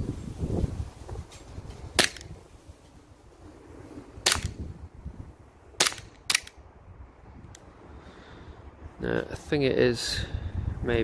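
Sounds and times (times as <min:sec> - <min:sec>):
bb pistol shots: 0:02.0 - 0:02.3, 0:04.2 - 0:04.6, 0:05.8 - 0:06.6.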